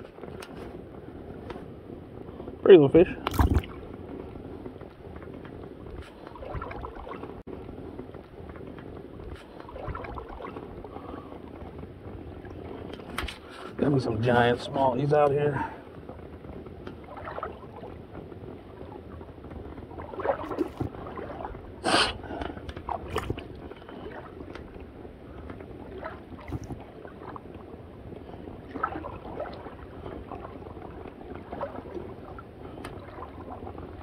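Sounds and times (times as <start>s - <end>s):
water sloshing and gurgling: 0.0s - 34.0s
short water splashes: 2.8s - 4.0s, 5.9s - 7.5s, 9.2s - 11.8s, 16.9s - 34.0s.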